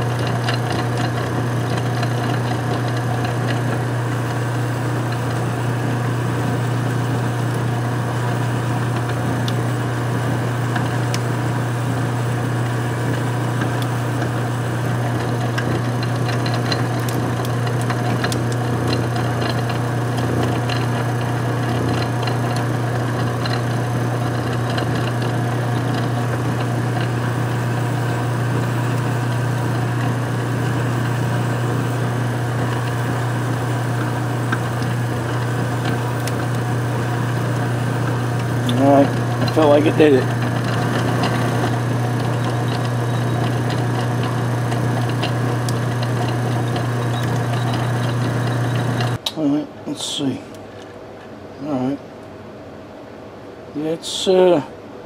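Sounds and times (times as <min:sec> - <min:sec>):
metal lathe motor hum: 0:00.0 - 0:49.2
drill bit light ticks: 0:09.0 - 0:09.6, 0:11.1 - 0:11.3, 0:34.0 - 0:36.7, 0:38.3 - 0:49.4.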